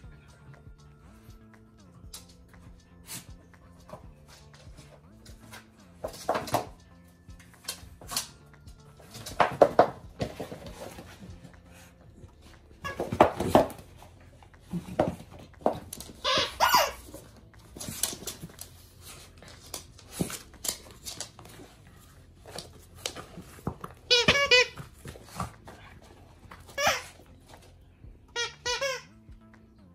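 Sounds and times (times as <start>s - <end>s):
squeaky toy squeaking: 16.2s - 17.1s, 24.1s - 24.9s, 26.7s - 27.2s, 28.3s - 29.2s.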